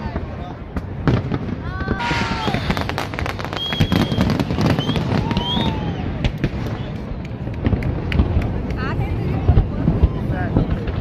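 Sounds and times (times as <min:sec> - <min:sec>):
fireworks crackling and banging: 0:00.0 - 0:11.0
whistling tones: 0:02.4 - 0:06.0.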